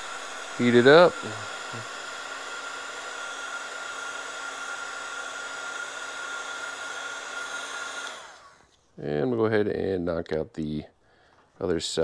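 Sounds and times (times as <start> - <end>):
heat gun whining air rush: 0.0 - 8.7.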